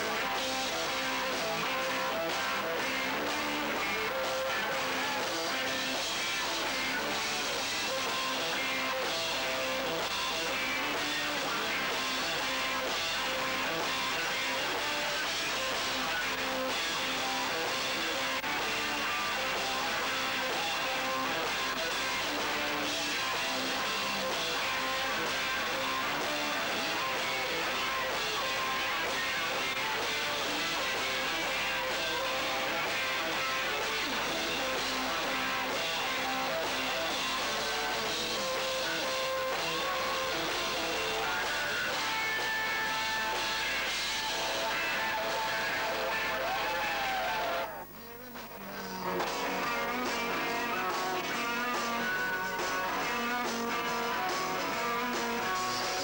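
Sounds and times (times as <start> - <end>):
electric guitars: 0.0 - 56.0
live band playing: 49.1 - 56.0.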